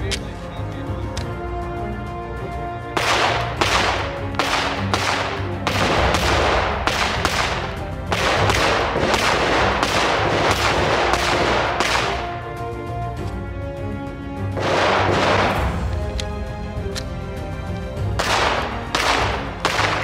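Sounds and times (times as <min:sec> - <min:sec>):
background music: 0:00.0 - 0:20.0
pistol shots: 0:03.0 - 0:12.4, 0:14.5 - 0:16.0, 0:18.1 - 0:20.0.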